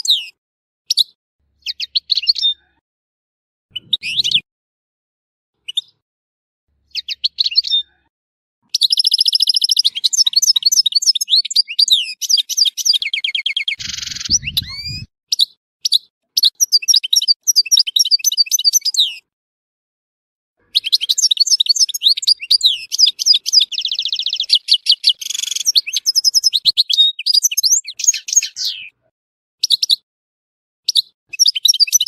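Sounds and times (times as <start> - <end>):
goldfinch twittering song: 8.7 - 19.2, 20.7 - 28.9, 30.9 - 32.0.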